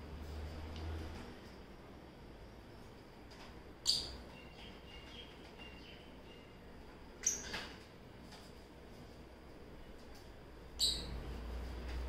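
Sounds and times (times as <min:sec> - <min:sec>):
lovebirds chirping: 0:03.8 - 0:07.6, 0:10.7 - 0:11.3.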